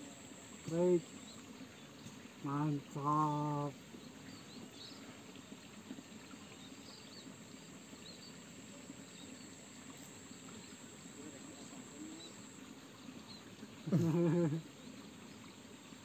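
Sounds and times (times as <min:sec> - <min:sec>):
faint bird chirps: 0:06.3 - 0:15.6.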